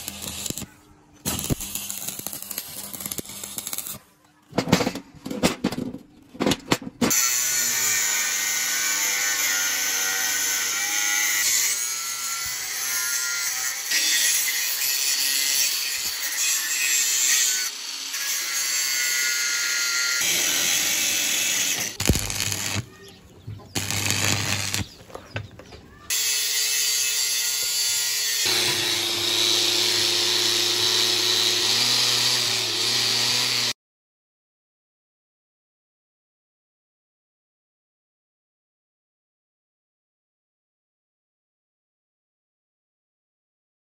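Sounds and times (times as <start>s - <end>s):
angle grinder grinding steel: 0.0s - 0.7s, 1.3s - 4.0s, 7.0s - 22.9s, 23.7s - 25.0s, 26.1s - 33.8s.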